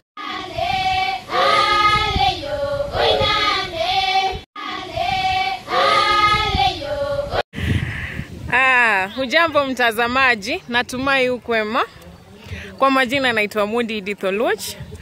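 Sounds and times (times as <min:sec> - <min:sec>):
children singing together: 0:00.2 - 0:07.4.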